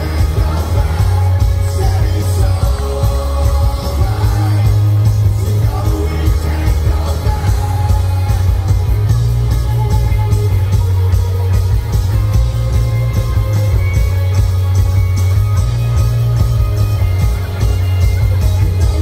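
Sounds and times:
live rock band: 0:00.0 - 0:19.0.

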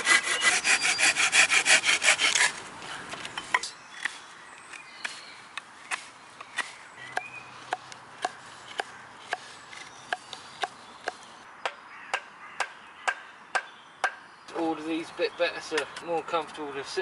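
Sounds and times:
knife carving wood: 0:00.0 - 0:02.6.

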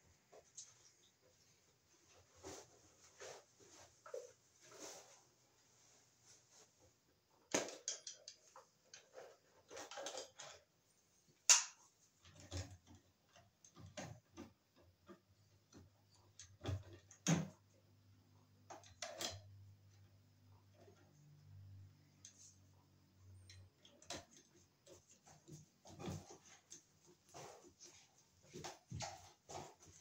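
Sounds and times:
rustling: 0:00.0 - 0:07.0.

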